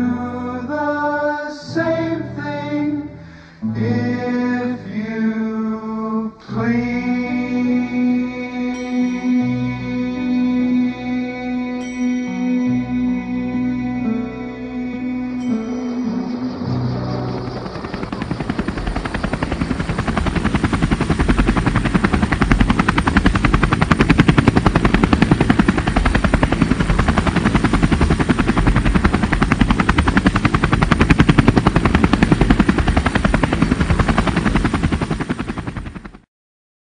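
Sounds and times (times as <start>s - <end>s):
helicopter rotor chopping: 15.3s - 36.3s.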